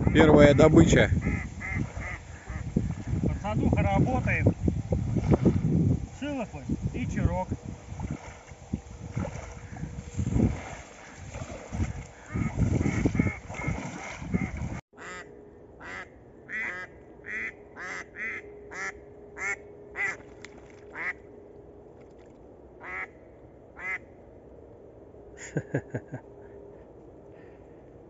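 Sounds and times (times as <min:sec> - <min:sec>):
wind on microphone: 0:00.0 - 0:14.8
duck quacking: 0:01.2 - 0:02.7, 0:12.2 - 0:20.2, 0:21.0 - 0:21.2, 0:22.8 - 0:23.1
wading splashing water: 0:01.2 - 0:14.8, 0:20.0 - 0:21.2.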